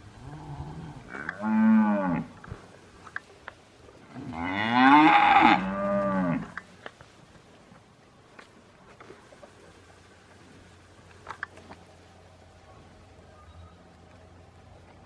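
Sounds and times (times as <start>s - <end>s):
cattle mooing: 0.2s - 2.4s, 4.1s - 6.6s.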